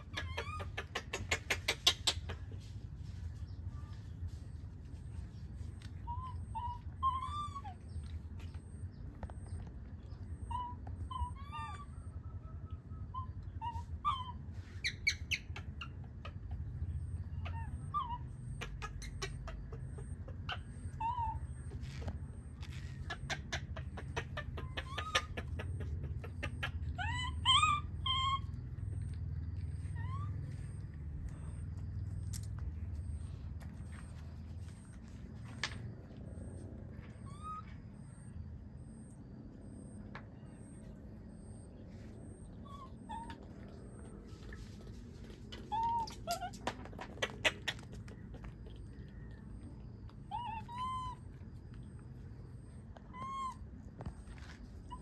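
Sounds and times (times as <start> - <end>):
young monkeys coo calls: 0.0 - 2.8, 5.5 - 32.0, 37.0 - 39.0, 42.3 - 55.0.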